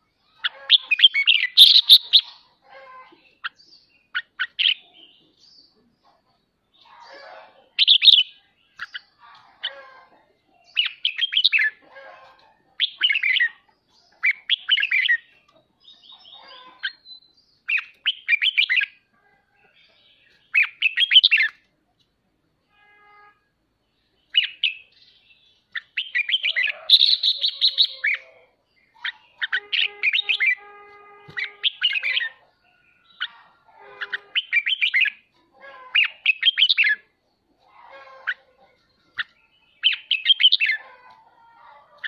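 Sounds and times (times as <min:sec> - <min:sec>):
bird chattering song: 0:00.0 - 0:21.7, 0:23.9 - 0:40.9.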